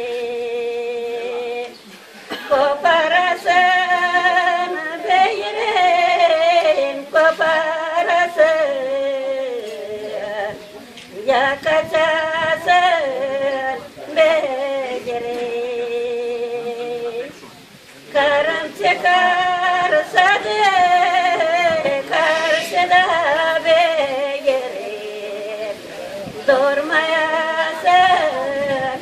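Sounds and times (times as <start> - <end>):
women singing unaccompanied: 0.0 - 29.0.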